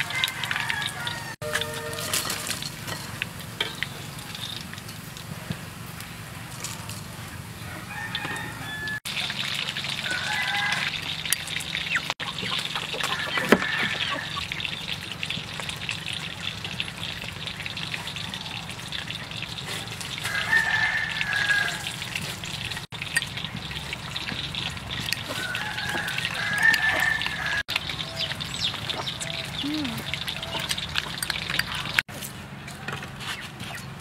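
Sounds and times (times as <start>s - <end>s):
chickens clucking: 11.9s - 14.5s, 24.9s - 32.0s.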